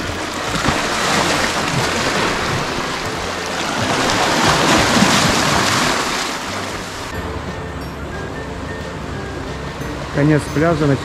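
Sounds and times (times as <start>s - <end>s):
sea waves lapping over rocks: 0.0s - 7.2s.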